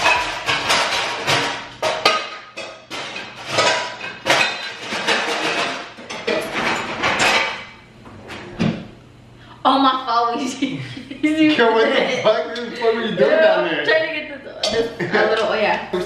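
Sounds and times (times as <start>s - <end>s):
pots and pans clattering: 0.0s - 8.9s.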